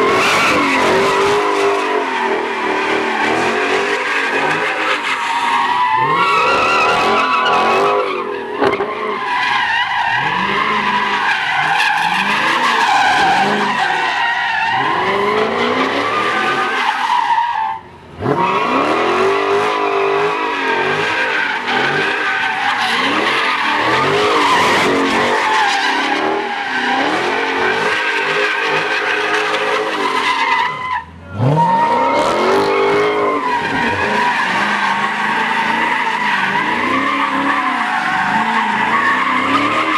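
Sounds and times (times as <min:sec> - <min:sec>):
car engine revving: 0:00.0 - 0:09.2, 0:17.8 - 0:39.9
tyres screeching: 0:19.4 - 0:39.9.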